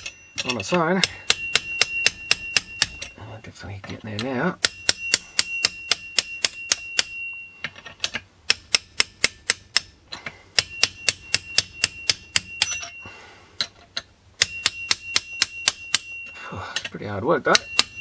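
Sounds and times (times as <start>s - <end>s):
socket ratchet clicking: 8.0s - 12.9s.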